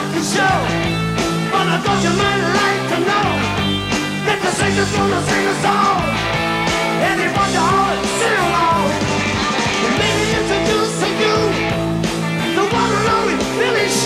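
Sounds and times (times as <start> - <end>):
person singing lead vocal: 0.0 - 0.8, 1.5 - 3.6, 4.2 - 6.2, 6.9 - 9.1, 9.8 - 11.7, 12.4 - 14.0
bass guitar: 0.0 - 14.0
drums: 0.0 - 14.0
electric guitars: 0.0 - 14.0.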